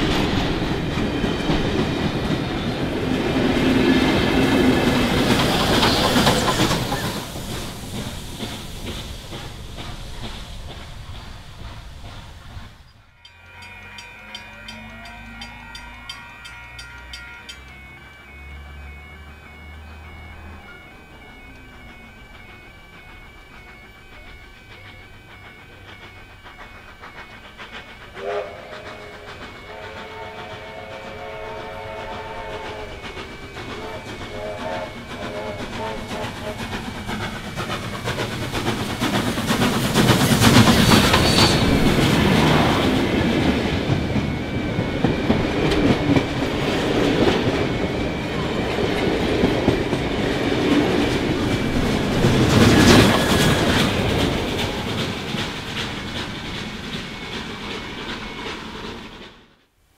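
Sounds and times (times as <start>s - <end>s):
steam locomotive whistle: 0.0s - 9.0s, 13.0s - 59.1s
wheels clattering over rail joints: 0.0s - 17.8s, 31.8s - 59.5s
train passing: 0.0s - 59.9s.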